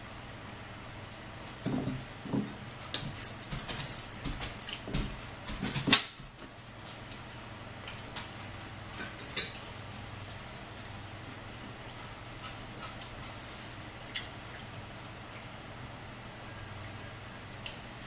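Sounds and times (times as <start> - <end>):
low steady hum: 0.0 - 18.0
chewing and mouth smacks: 12.2 - 15.6.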